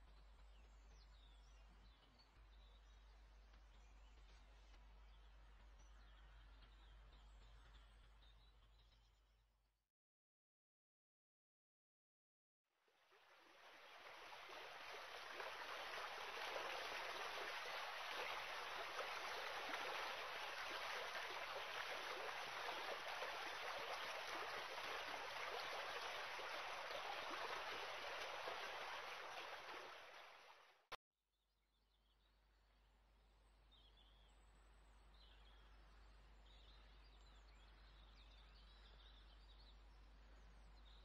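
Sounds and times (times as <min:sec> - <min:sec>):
steady rain falling: 0:13.5 - 0:30.7.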